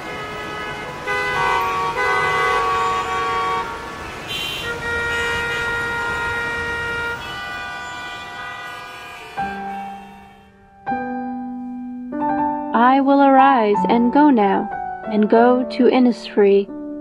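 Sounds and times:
vehicle horns tooting: 0.0 - 10.7
traffic background noise: 0.0 - 10.8
piano note: 1.4 - 15.3.

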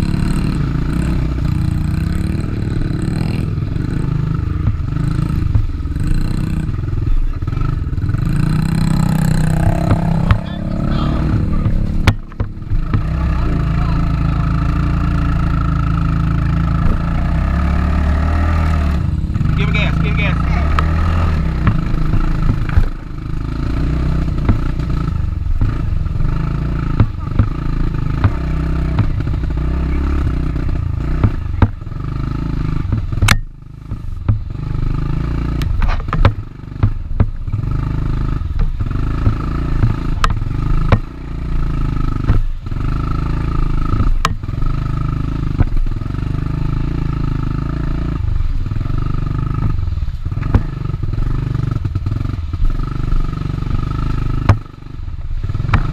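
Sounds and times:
dirt bike engine running hard: 0.0 - 55.9
sharp clicks and knocks: 8.3 - 13.3, 20.7 - 23.1, 26.8 - 29.5, 35.6 - 37.6, 38.5 - 41.2, 43.9 - 44.5.

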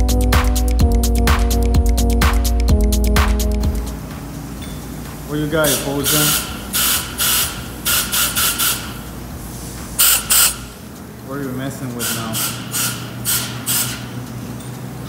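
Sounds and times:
compressed air hisses: 5.2 - 10.8, 12.0 - 14.2.

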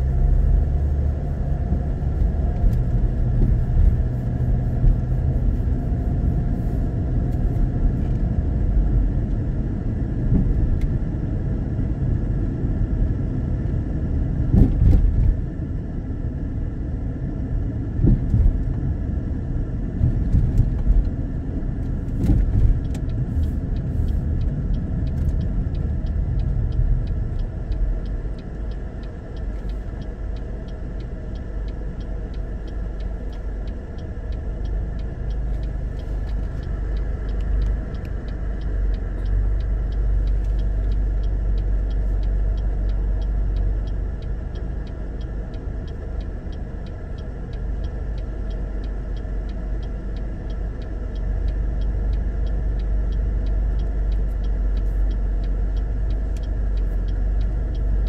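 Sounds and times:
faint regular ticking: 0.0 - 9.4, 20.3 - 58.0
car engine idling: 21.8 - 58.0.

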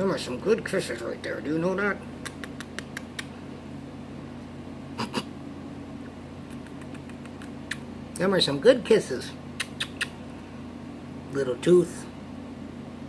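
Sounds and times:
steady low hum: 0.0 - 13.0
wet lip smacks of kisses: 2.2 - 3.4, 6.4 - 7.9, 9.6 - 10.2.

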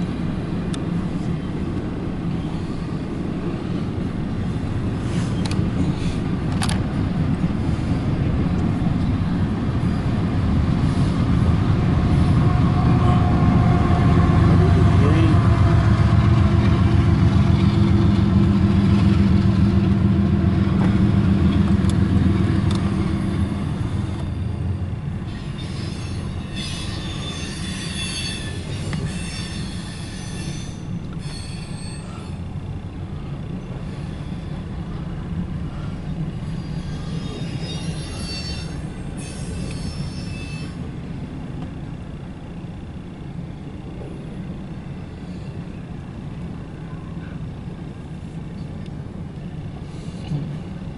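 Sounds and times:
diesel locomotive engine rumble: 0.0 - 50.9
train cars rolling past: 0.0 - 50.9
train wheels squealing: 9.0 - 11.2, 21.1 - 32.6, 33.5 - 34.9, 35.7 - 41.2.

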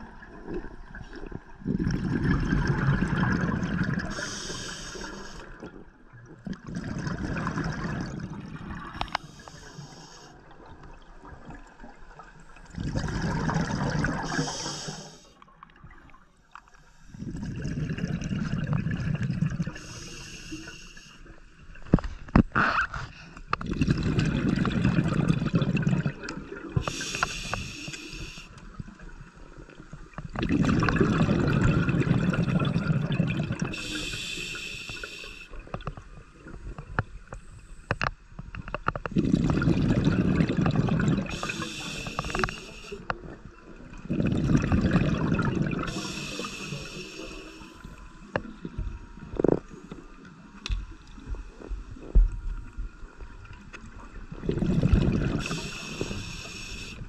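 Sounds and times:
exhaled bubbles gurgling underwater: 0.0 - 22.4, 23.5 - 57.0
air hissing through regulator: 4.0 - 5.5, 9.0 - 10.4, 14.1 - 15.4, 19.8 - 21.2, 26.8 - 28.6, 33.6 - 35.6, 41.3 - 43.1, 45.8 - 48.0, 55.3 - 57.0.

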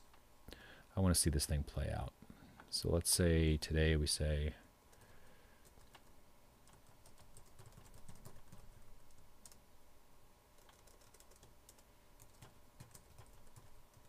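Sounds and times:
faint keyboard typing: 4.9 - 9.6, 10.6 - 14.0.

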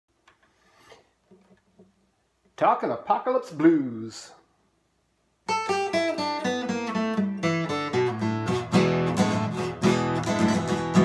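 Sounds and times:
acoustic guitar playing: 5.4 - 11.0.

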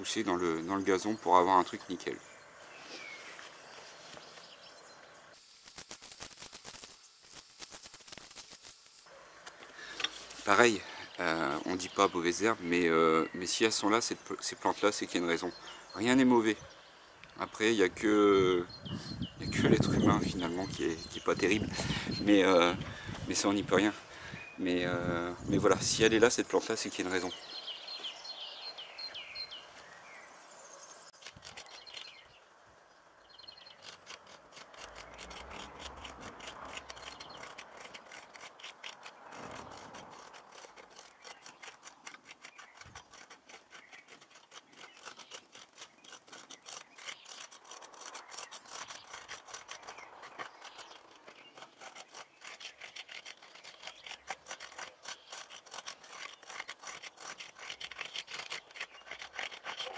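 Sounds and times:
rake scraping through soil: 5.4 - 12.8, 19.4 - 27.4, 31.1 - 32.3, 33.5 - 59.9.

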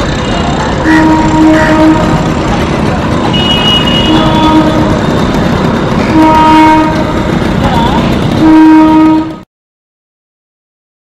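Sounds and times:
diesel locomotive engine rumbling: 0.0 - 9.5
locomotive horn blasts: 0.2 - 2.3, 3.3 - 5.1, 6.0 - 7.3, 8.2 - 9.4.

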